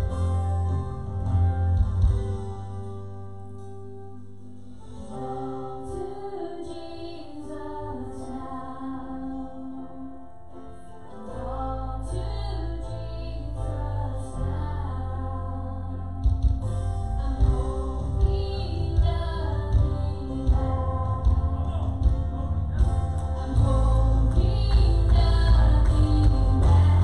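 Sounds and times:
bass guitar: 0.0 - 5.5, 11.4 - 27.0
keyboard chords: 0.0 - 27.0
woman singing: 5.2 - 10.3, 11.2 - 16.3, 17.2 - 21.6, 23.4 - 27.0.

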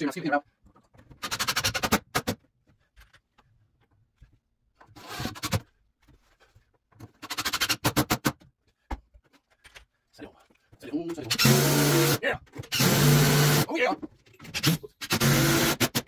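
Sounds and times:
impact driver whirring: 11.3 - 13.7.

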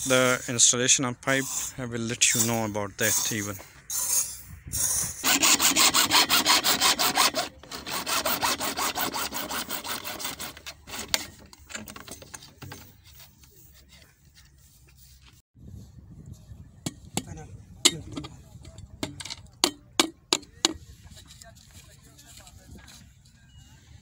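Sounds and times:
hacksaw sawing plastic pipe: 1.4 - 14.0.

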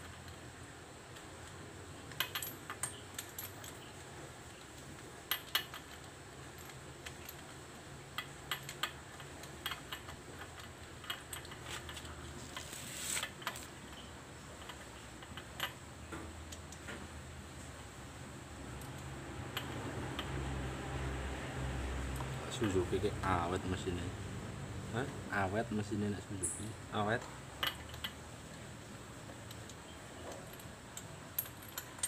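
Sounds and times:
metal scrape: 11.6 - 13.4.

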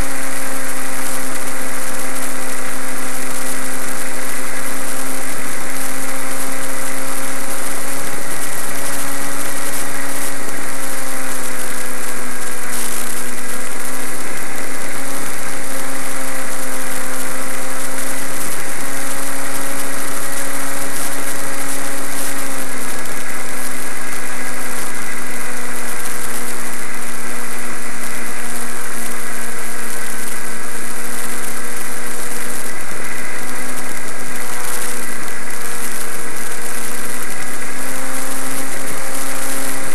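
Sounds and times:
model plane motor humming: 0.0 - 39.9.

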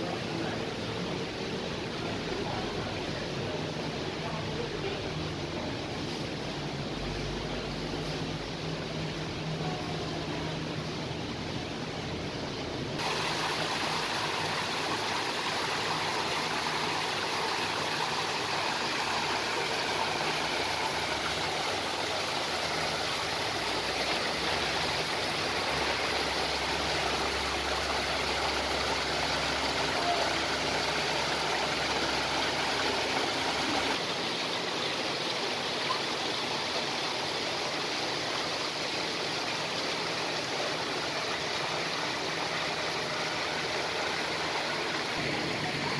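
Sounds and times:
waterfall splashing into pool: 13.0 - 45.9.

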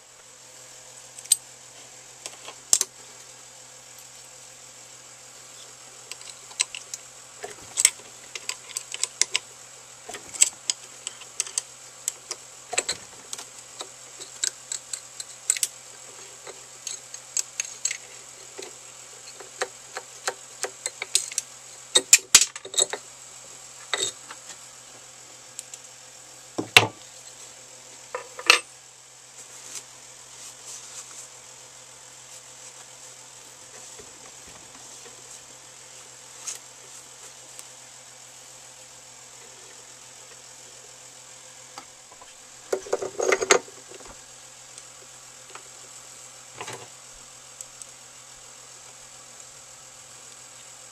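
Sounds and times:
faint steady hum: 0.0 - 50.9.

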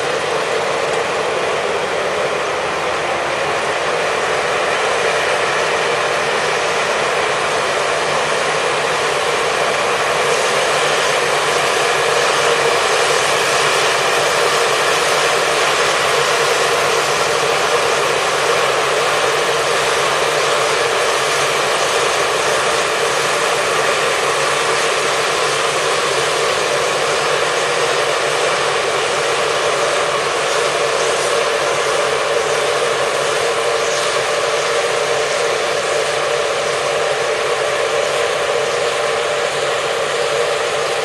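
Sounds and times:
combine harvester running: 0.0 - 41.0.

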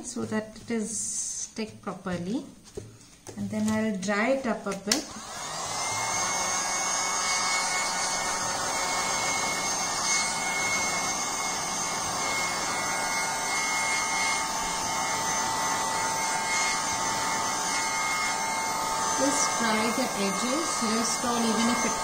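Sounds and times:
hot-air blower running: 4.8 - 22.0.

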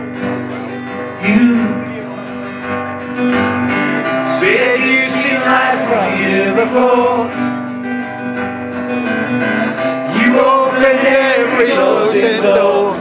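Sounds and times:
acoustic guitar strumming: 0.0 - 13.0
man singing: 1.0 - 2.4, 4.0 - 7.6, 9.7 - 13.0.

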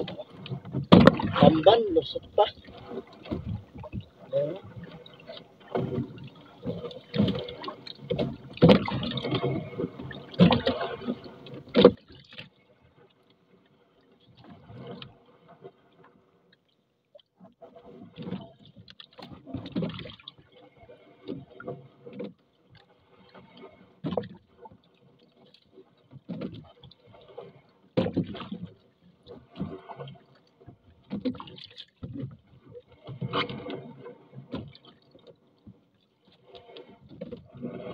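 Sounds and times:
water splashing: 0.0 - 12.4.

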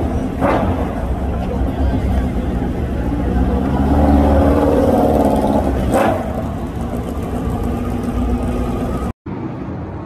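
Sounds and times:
motorcycle engine running: 4.8 - 9.1.

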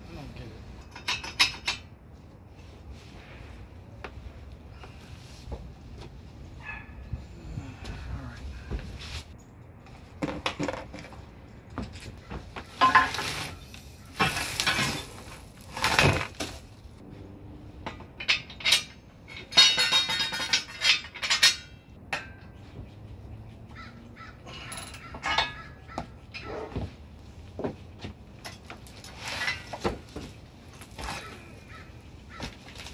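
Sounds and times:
steel frame knocking and clanking: 0.8 - 1.9, 17.8 - 22.8, 24.6 - 27.0
ringing metal clatter: 17.9 - 22.6, 24.5 - 26.7.

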